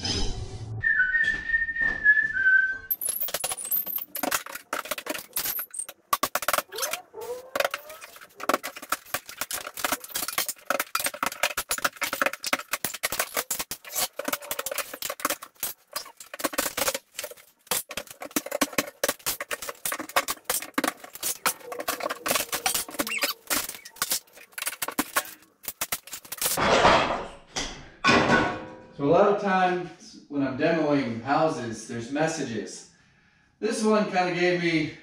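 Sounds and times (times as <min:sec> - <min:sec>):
wood cracking and creaking: 0:02.9 - 0:26.8.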